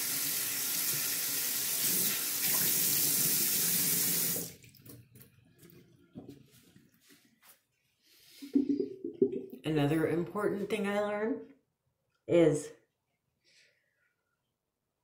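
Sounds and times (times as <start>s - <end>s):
water dripping: 0.0s - 6.0s
bathroom faucet running: 0.0s - 6.1s.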